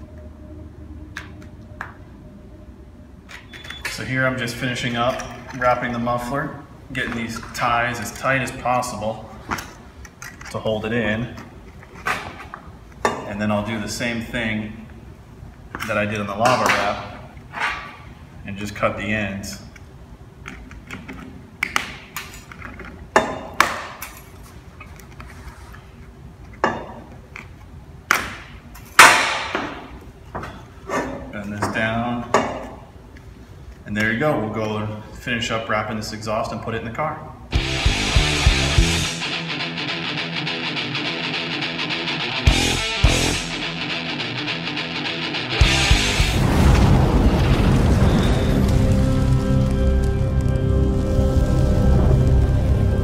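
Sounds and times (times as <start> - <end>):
rock music with guitar: 37.5 - 46.4
dense low rumble: 45.6 - 53.0
heavy boom: 45.9 - 53.0.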